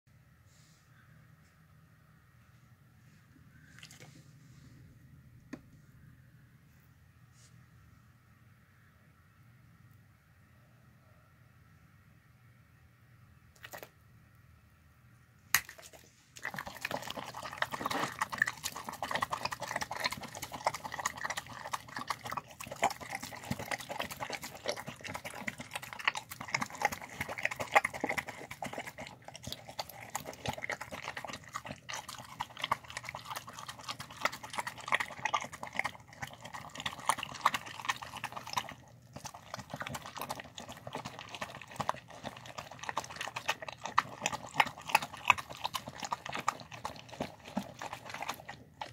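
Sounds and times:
dog chewing wet food: 15.6s - 48.9s.

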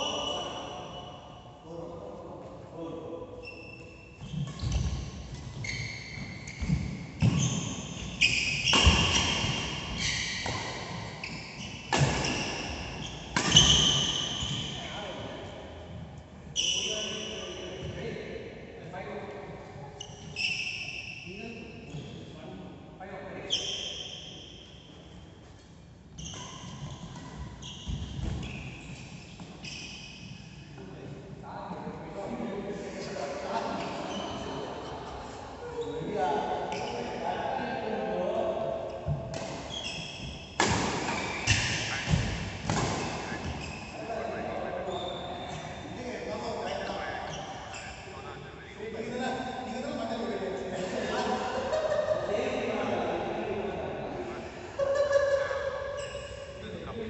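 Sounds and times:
shoes squeaking on court: 3.4s - 14.9s, 16.6s - 17.9s, 19.9s - 21.2s, 23.5s - 30.5s, 39.0s - 48.4s
racket hitting shuttlecock: 8.6s - 9.7s, 11.9s - 12.6s, 13.3s - 14.2s, 40.6s - 43.6s.

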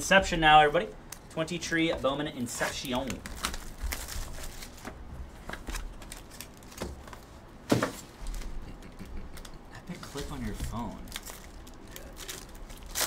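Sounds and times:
cardboard and foil rustling: 2.5s - 8.6s, 9.9s - 13.0s.

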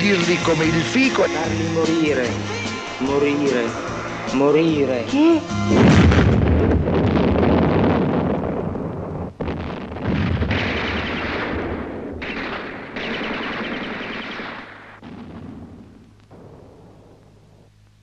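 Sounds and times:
rapid machine-gun fire: 9.4s - 15.8s.

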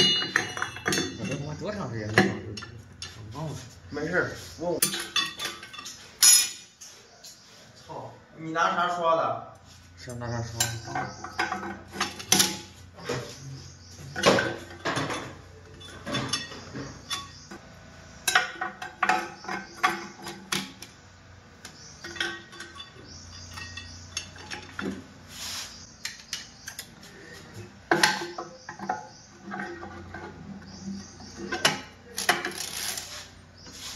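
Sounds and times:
metal plates clinking and knocking: 0.0s - 3.3s, 4.8s - 6.8s, 10.5s - 17.6s, 18.2s - 20.9s, 21.6s - 25.2s, 26.1s - 32.8s.

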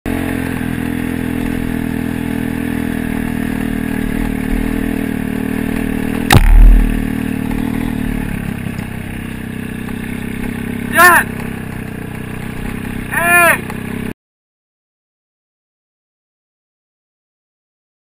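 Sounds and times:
dirt bike engine running: 0.1s - 14.2s
sharp knock: 6.3s - 7.1s
low thump: 6.3s - 7.2s.

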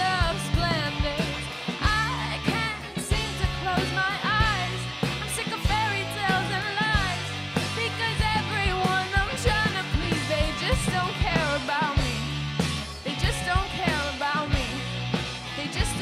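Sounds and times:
person singing: 0.0s - 12.4s, 13.0s - 14.8s
rock band playing: 0.0s - 16.0s.

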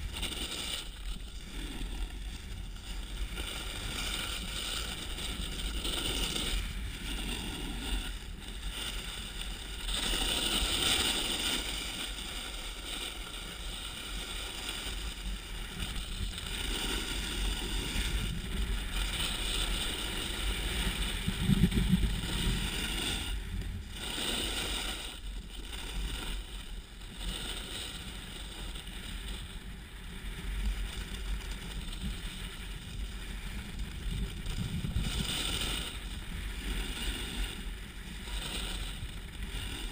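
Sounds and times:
low wind rumble on microphone: 0.0s - 39.9s
snowboard scraping over snow: 0.0s - 39.9s.

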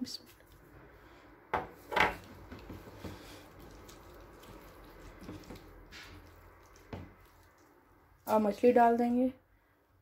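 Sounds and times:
wet squishing of hand mixing: 1.7s - 9.0s.

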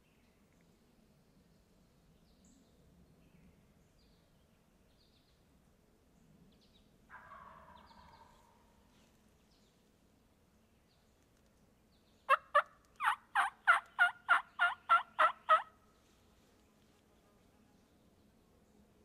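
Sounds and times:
turkey gobbling: 7.1s - 8.6s, 12.3s - 15.7s.

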